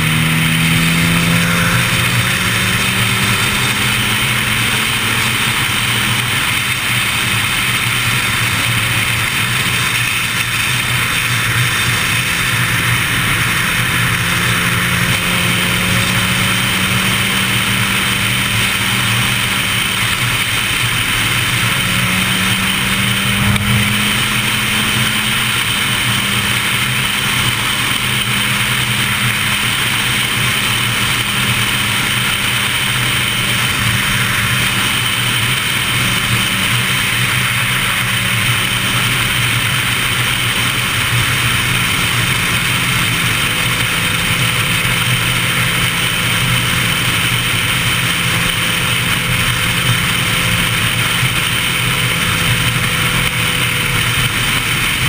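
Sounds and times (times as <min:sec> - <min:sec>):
motorcycle engine running: 0:00.0 - 0:55.0
wind and road noise: 0:00.0 - 0:55.0.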